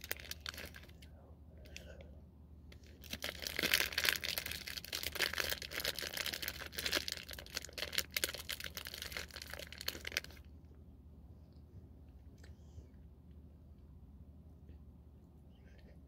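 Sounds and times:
plastic pouch crinkling and tearing: 0.0s - 1.0s, 2.8s - 10.5s.

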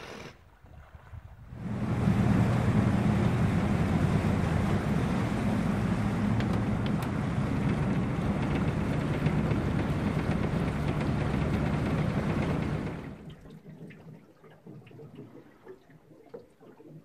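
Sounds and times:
outboard motor running: 0.0s - 0.4s, 1.5s - 13.4s
water rushing: 0.0s - 13.8s
wind: 0.0s - 17.0s.

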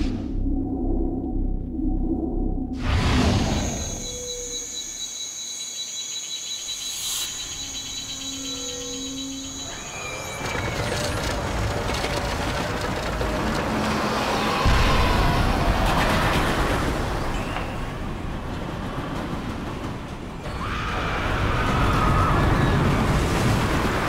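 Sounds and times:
insects trilling: 3.4s - 11.4s
roller coaster rumbling on track: 7.6s - 24.0s.

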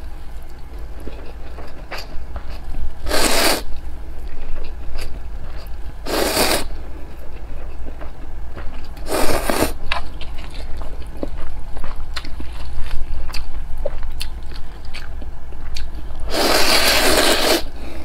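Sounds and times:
person slurping noodles: 3.1s - 3.6s, 6.1s - 6.7s, 16.3s - 17.7s
chewing: 7.0s - 17.5s.

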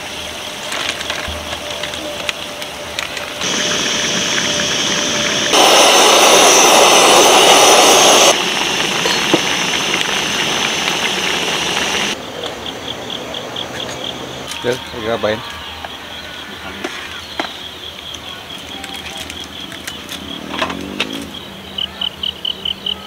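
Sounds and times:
fries sizzling in hot oil: 0.0s - 12.2s, 18.2s - 21.8s.

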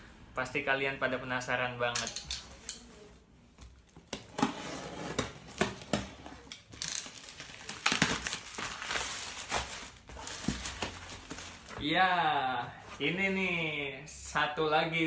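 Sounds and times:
packaging being torn and crinkled: 6.8s - 11.7s.

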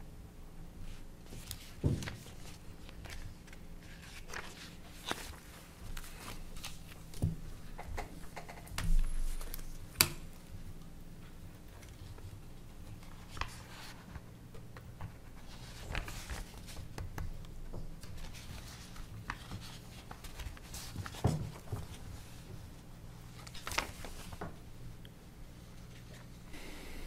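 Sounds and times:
low room hum: 0.0s - 27.0s
papers rustling: 1.3s - 7.4s, 11.8s - 24.6s.

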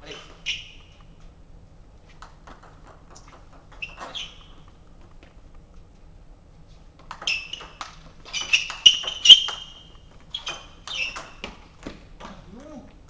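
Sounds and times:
table tennis ball pinging: 2.2s - 4.7s, 7.1s - 12.8s.

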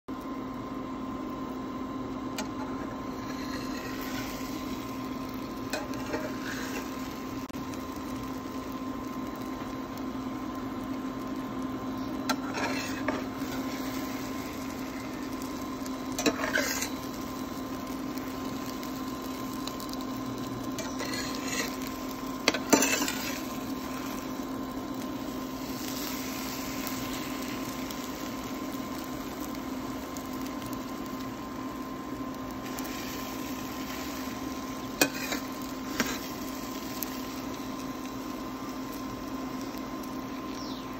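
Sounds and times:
steady hum: 0.1s - 40.9s
spatula scraping frying pan: 2.4s - 7.1s, 12.3s - 15.4s, 16.1s - 17.2s, 20.7s - 24.4s, 32.6s - 36.8s.

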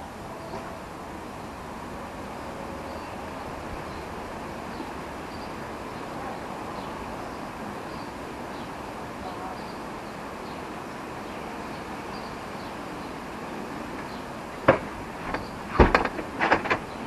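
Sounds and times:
steady background hiss: 0.0s - 17.0s
sharp loud knocks: 14.7s - 16.9s.

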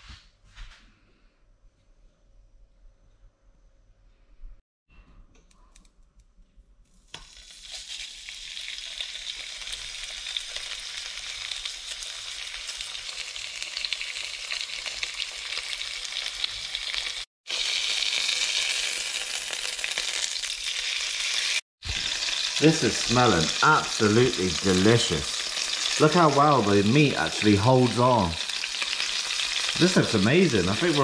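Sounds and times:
fish sizzling in hot oil: 7.1s - 31.0s.

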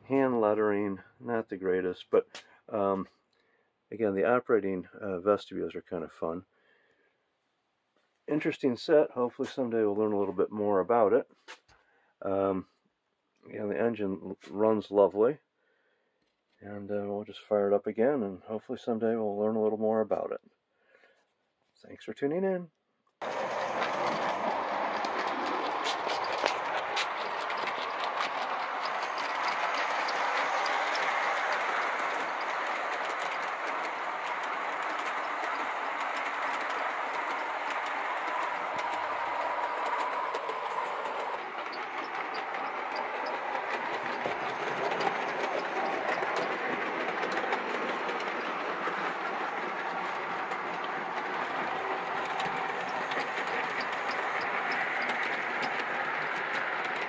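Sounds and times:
model train wheels rumbling on rails: 23.2s - 57.0s
small clicks of track: 23.2s - 57.0s.

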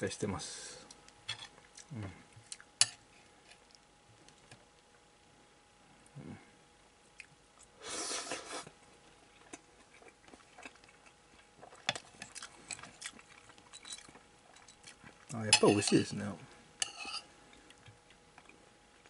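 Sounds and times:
quiet chewing: 0.8s - 5.0s, 7.0s - 15.4s, 16.5s - 19.0s.

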